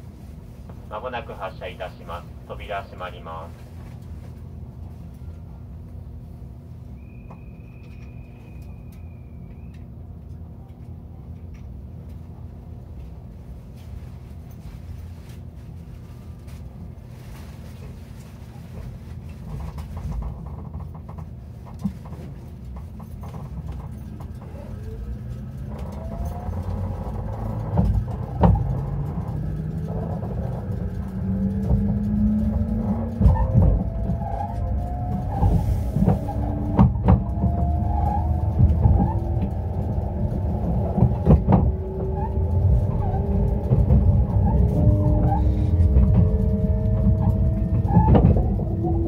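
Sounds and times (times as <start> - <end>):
train running rumble: 0.0 - 49.0
traction motors whining: 6.9 - 10.0, 23.2 - 49.0
wheels clacking over rail joints: 19.3 - 49.0.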